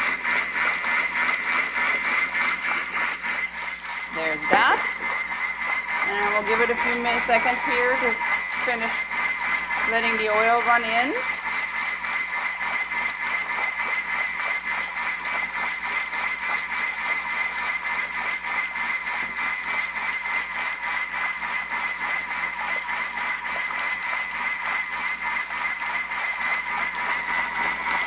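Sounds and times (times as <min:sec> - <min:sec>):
food processor whirring: 0:00.0 - 0:28.0.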